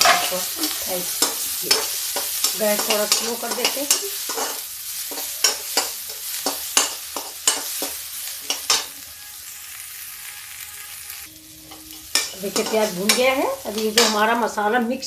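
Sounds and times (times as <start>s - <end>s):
spatula scraping a pan: 0.0s - 9.6s
onion sizzling in oil: 0.0s - 15.0s.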